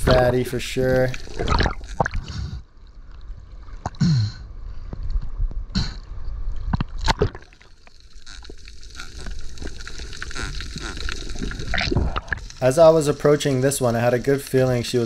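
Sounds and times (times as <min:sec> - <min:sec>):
water rushing and gurgling: 0:00.0 - 0:02.7
sharp clicks and knocks underwater: 0:01.2 - 0:02.3, 0:06.5 - 0:12.6.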